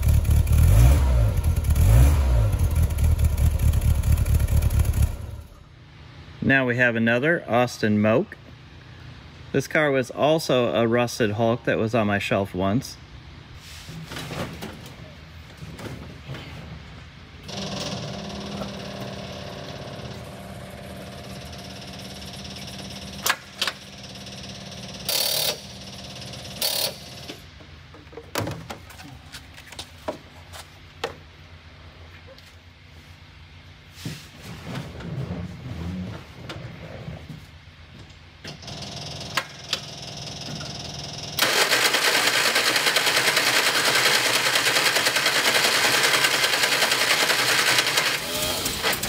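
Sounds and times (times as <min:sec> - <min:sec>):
car engine cranking: 0:41.4 - 0:49.0.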